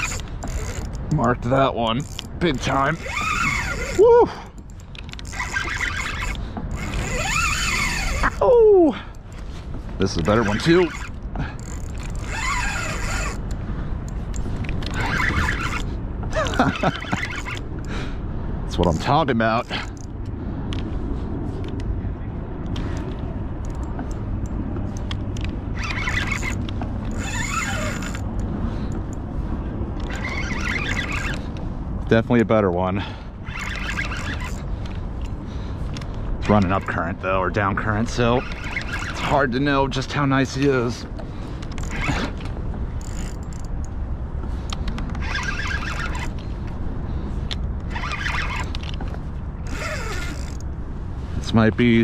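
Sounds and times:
fishing reel noise: 0.0 - 18.0, 18.7 - 20.2, 23.6 - 29.2, 30.0 - 31.6, 33.4 - 35.3, 36.4 - 37.0, 38.0 - 40.0, 41.7 - 43.9, 44.6 - 46.6, 47.8 - 49.0, 49.6 - 50.7.

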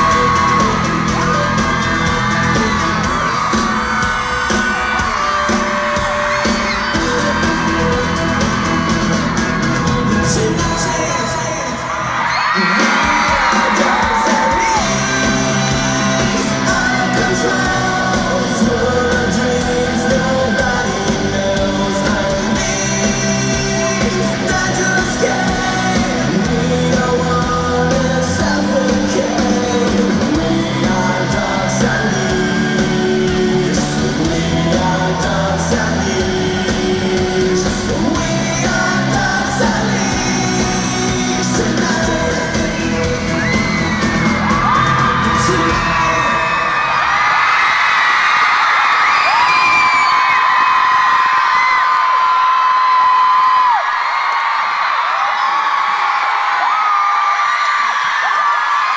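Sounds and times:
live rock band playing: 0.0 - 46.6
man singing into microphone: 0.0 - 47.1.

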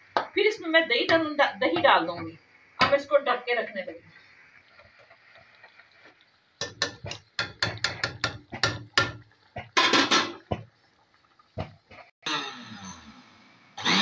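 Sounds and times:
ladle knocking on metal pot: 6.6 - 10.7.

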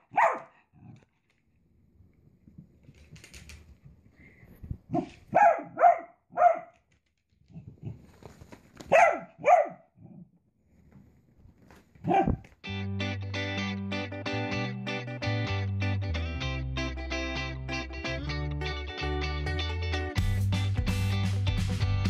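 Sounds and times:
small dog yapping: 0.0 - 0.5, 4.9 - 6.7, 8.8 - 9.8, 12.0 - 12.4.

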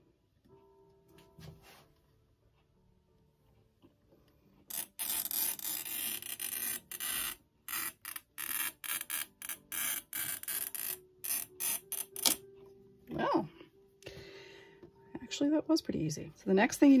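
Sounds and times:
glass cutter scoring glass: 4.7 - 12.4.

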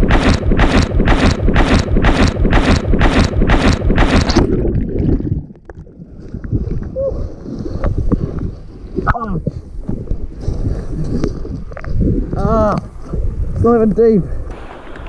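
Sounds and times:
water splashing rhythmically: 0.0 - 6.6, 14.5 - 15.0
muffled wash of water: 4.3 - 15.0.

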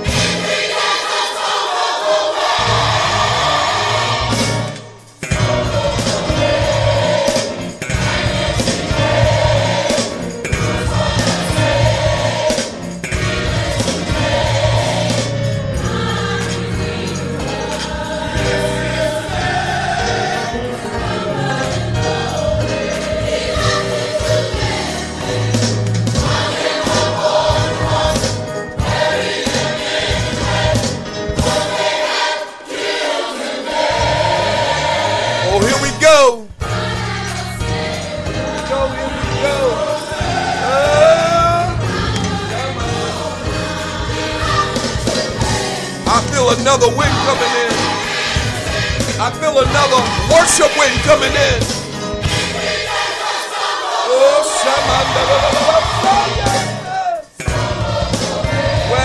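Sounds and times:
gospel choir singing: 0.0 - 59.0.

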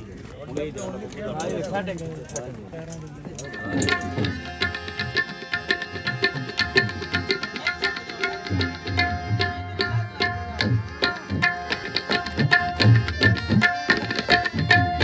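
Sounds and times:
fast tabla strokes: 3.4 - 15.0
sustained harmonium notes: 3.4 - 15.0.

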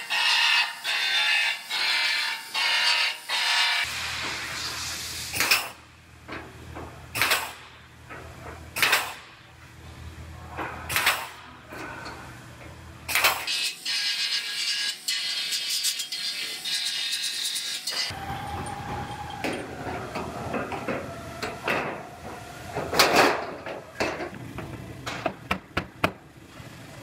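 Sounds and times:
pneumatic belt sander: 0.0 - 5.9, 7.1 - 7.8, 8.7 - 9.4, 10.8 - 11.6, 13.1 - 25.3
pneumatic punch snapping: 5.2 - 5.8, 7.1 - 9.3, 10.9 - 11.5, 13.1 - 13.7, 17.9 - 24.4.

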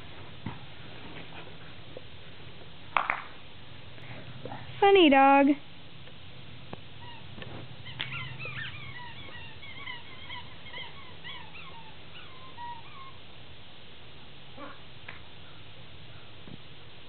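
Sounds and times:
low steady hum: 0.0 - 17.0
dog whimpering: 7.0 - 13.2.

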